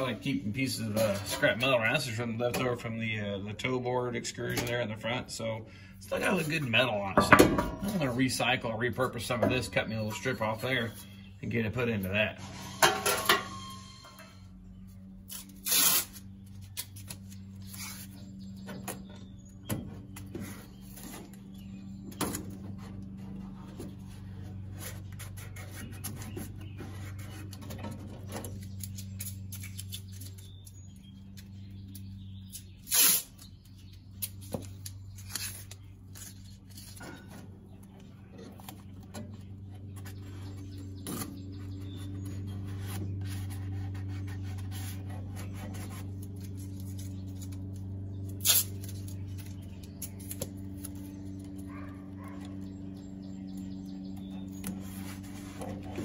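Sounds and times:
steady low hum: 0:00.0 - 0:56.0
tape tearing off roll: 0:15.2 - 0:18.2, 0:32.8 - 0:37.2, 0:42.7 - 0:51.2.

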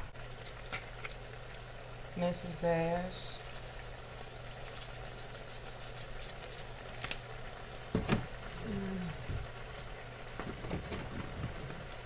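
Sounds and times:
steady low hum: 0:00.0 - 0:12.0
seasoning shaker rattling: 0:00.2 - 0:07.3
person humming: 0:08.5 - 0:09.4.

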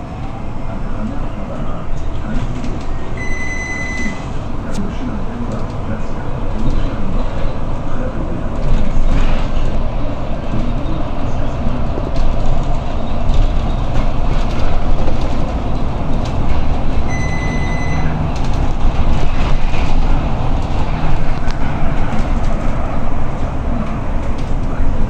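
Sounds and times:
bus engine and road noise: 0:00.0 - 0:25.0
electronic beep: 0:03.2 - 0:04.3, 0:17.1 - 0:18.2.

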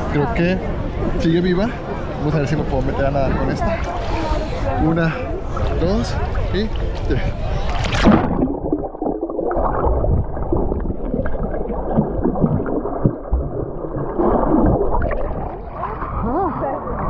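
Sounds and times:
muffled underwater water movement: 0:02.8 - 0:17.0
gurgling bubbles: 0:05.6 - 0:17.0
splash into water: 0:06.8 - 0:16.3.

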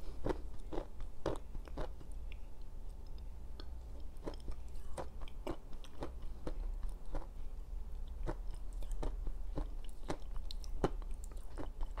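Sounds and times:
clay chewing crunches: 0:00.2 - 0:02.1.

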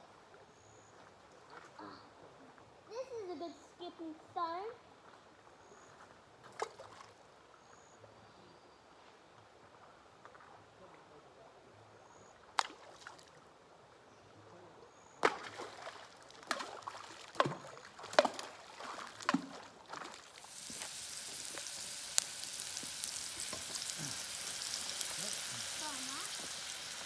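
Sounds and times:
stones splashing into water: 0:12.6 - 0:13.3, 0:15.2 - 0:27.0
onion sizzling in a wok: 0:20.3 - 0:27.0.

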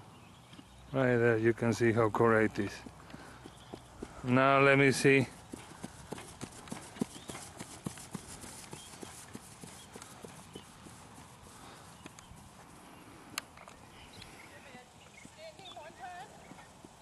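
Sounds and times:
horse hoofbeats: 0:02.5 - 0:12.8.

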